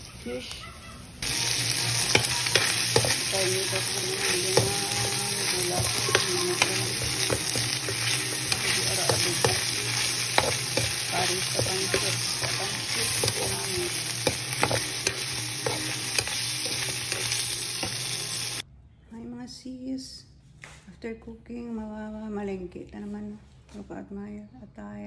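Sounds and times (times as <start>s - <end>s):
food sizzling in a wok: 0.0s - 18.6s
metal spatula scraping a pan: 1.2s - 18.6s.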